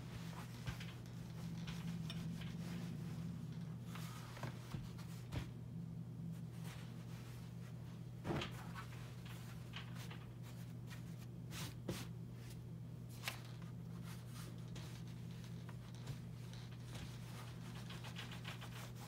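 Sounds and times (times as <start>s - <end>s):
fabric rustling: 0.0s - 5.6s
steady low hum: 0.0s - 19.0s.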